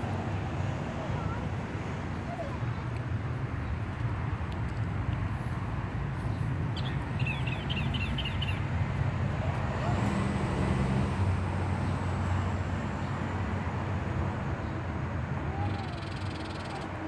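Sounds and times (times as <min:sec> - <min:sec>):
distant road traffic rumble: 0:00.0 - 0:17.0
bird chirping: 0:06.3 - 0:08.7.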